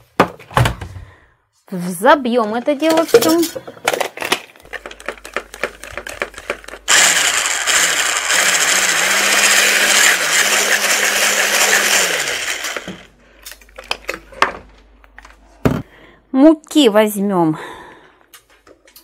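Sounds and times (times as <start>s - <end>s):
hand blender whirring: 4.9s - 13.1s.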